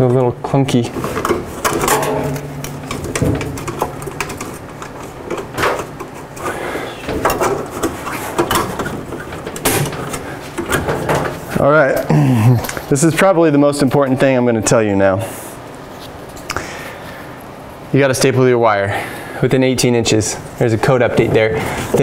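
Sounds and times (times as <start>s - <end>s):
rubbing and rattling: 0.0s - 11.7s
sharp metal clicks and knocks: 0.9s - 6.4s, 7.0s - 11.5s.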